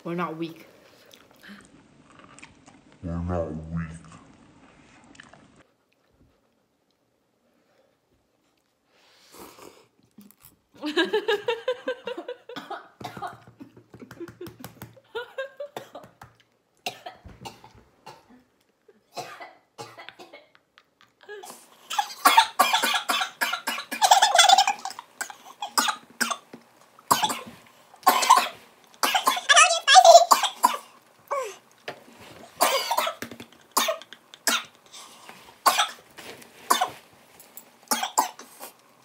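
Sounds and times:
women laughing: 10.8s - 15.8s
women coughing: 12.5s - 13.4s, 15.7s - 16.0s, 19.1s - 20.5s, 21.9s - 26.4s, 28.1s - 29.5s, 32.6s - 33.2s.

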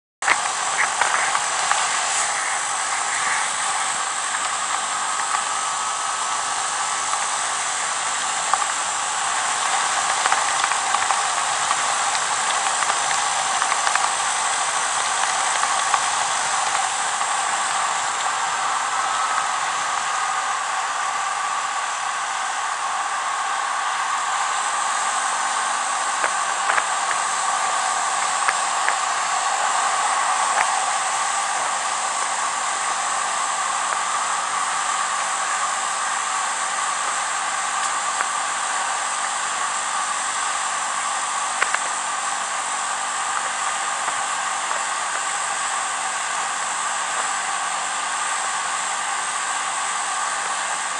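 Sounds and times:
wind and road noise: 0.2s - 21.6s
faint clicks: 41.6s - 42.0s.

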